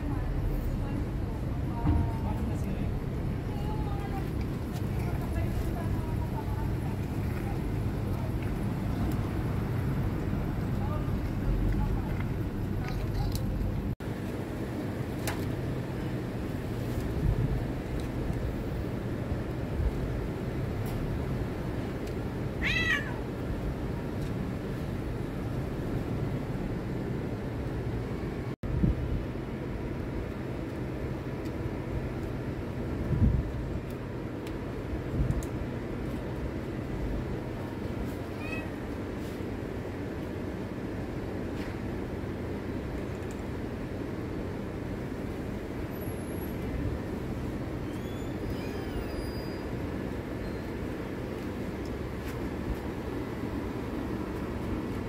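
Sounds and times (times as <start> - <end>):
low background rumble: 0.0 - 41.2
cat meowing: 22.6 - 23.3, 38.3 - 38.8.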